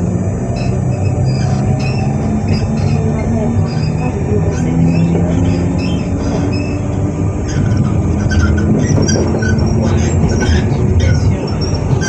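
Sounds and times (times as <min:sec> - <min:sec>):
train electrical equipment humming: 0:00.0 - 0:12.0
short high squeaks: 0:00.5 - 0:12.0.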